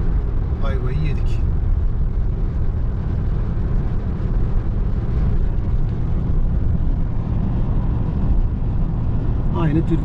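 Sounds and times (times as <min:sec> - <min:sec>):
road and wind noise in car: 0:00.0 - 0:10.0.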